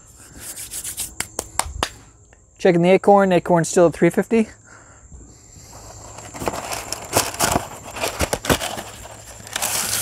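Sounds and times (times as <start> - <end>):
parchment paper crinkling: 5.7 - 10.0
sharp paper crackles: 6.0 - 10.0.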